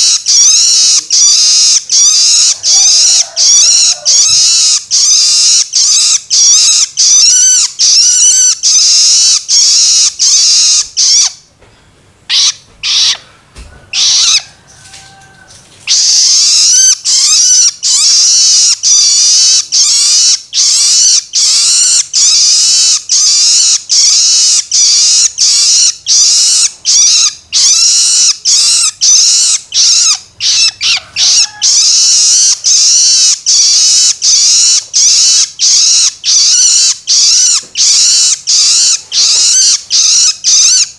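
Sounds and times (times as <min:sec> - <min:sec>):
young shrike rasping begging calls: 0:00.0 - 0:11.4, 0:12.3 - 0:13.2, 0:13.9 - 0:15.2, 0:15.9 - 0:40.9.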